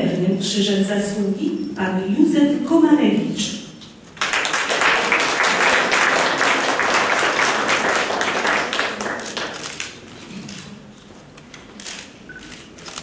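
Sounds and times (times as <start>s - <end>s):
audience applauding: 4.2s - 9.9s.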